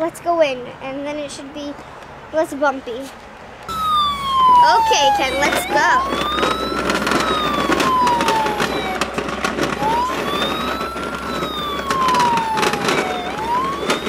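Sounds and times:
ambulance siren wailing: 0:03.7 - 0:14.0.

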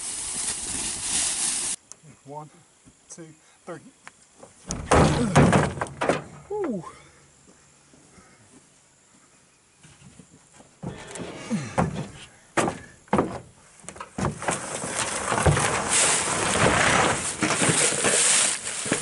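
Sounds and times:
thumps against truck bed: 0:04.7 - 0:06.4, 0:10.8 - 0:14.6
carcass scraping across plastic: 0:14.2 - 0:19.0.

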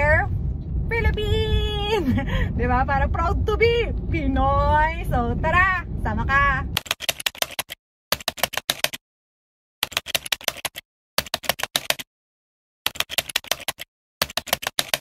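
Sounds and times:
rapid keyboard clicks: 0:06.8 - 0:09.0, 0:09.8 - 0:12.1, 0:12.9 - 0:15.0.

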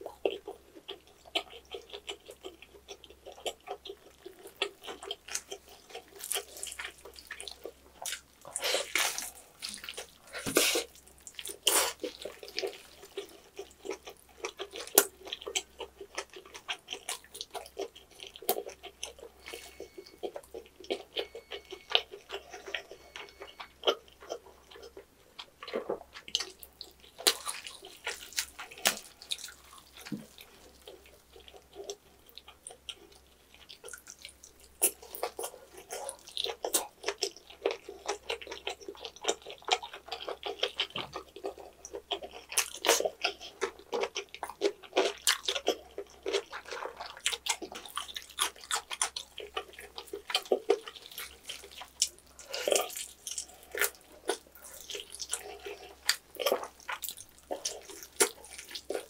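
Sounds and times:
wet chewing and lip-smacking: 0:00.0 - 0:59.0
crunching crisp skin: 0:04.6 - 0:25.0, 0:25.7 - 0:32.0.

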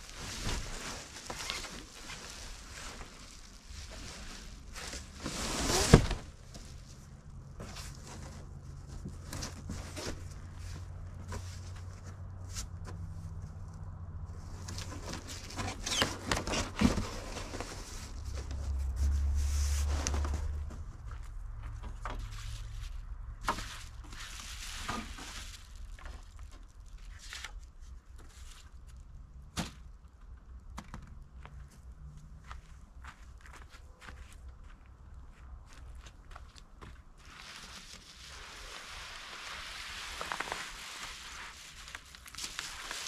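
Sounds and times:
foil insulation rustling and crinkling: 0:00.0 - 0:12.1, 0:14.4 - 0:21.1, 0:21.7 - 0:29.0, 0:37.2 - 0:43.0.

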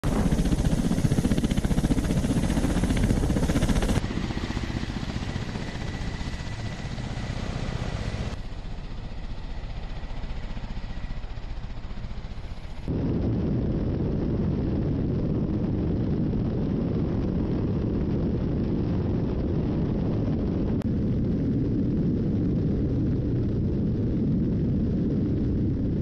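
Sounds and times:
high turbine whine: 0:00.0 - 0:15.7
helicopter rotors beating: 0:00.0 - 0:26.0.

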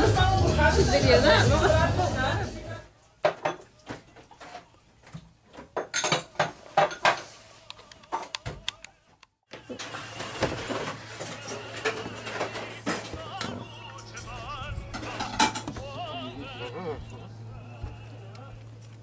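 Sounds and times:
dishes and utensils clattering: 0:03.2 - 0:07.4, 0:09.5 - 0:15.9
steady low hum: 0:11.1 - 0:19.0.

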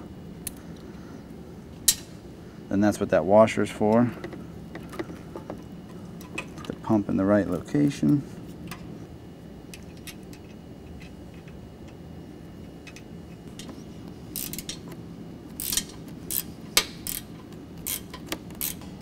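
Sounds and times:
ratchet wrench clicking: 0:14.4 - 0:14.8, 0:15.6 - 0:18.9.

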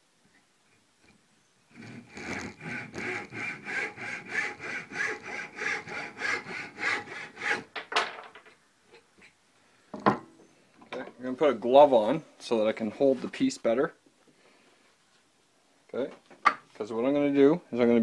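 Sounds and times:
hand saw cutting wood: 0:01.7 - 0:07.7.

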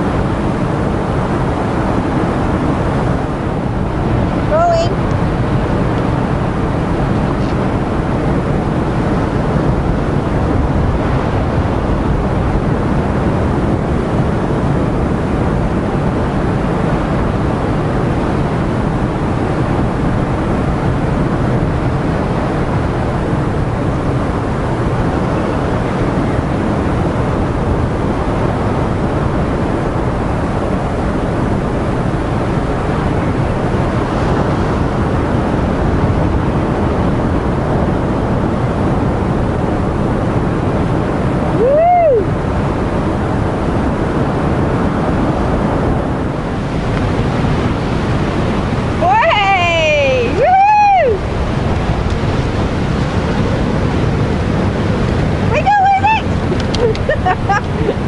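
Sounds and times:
wind buffeting microphone: 0:00.0 - 0:58.0
surf breaking against rocks: 0:42.3 - 0:58.0.

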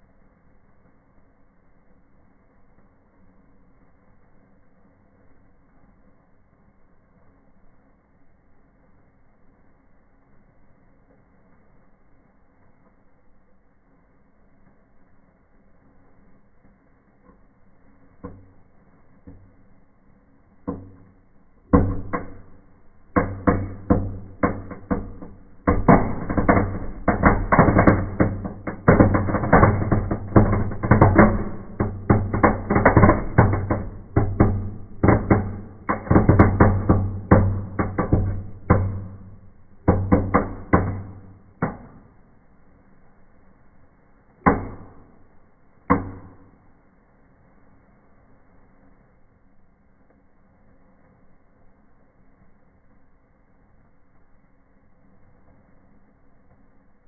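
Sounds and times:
firework pops and bangs: 0:20.8 - 0:42.2.

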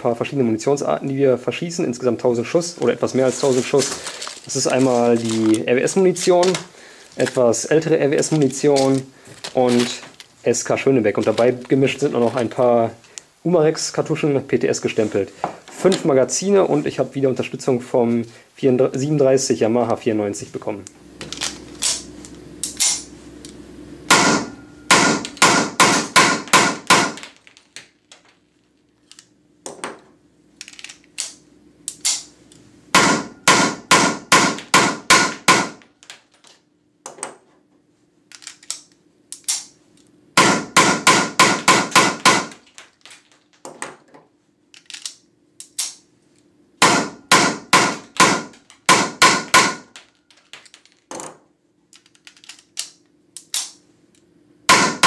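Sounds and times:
blank pistol shots: 0:24.1 - 0:27.2, 0:40.4 - 0:42.6.

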